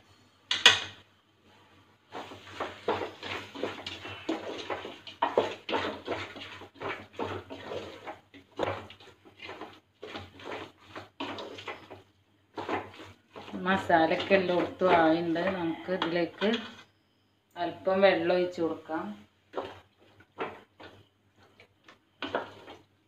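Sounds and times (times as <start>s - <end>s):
spoon stirring chicken in a pot: 2.1s - 16.9s, 19.5s - 23.0s.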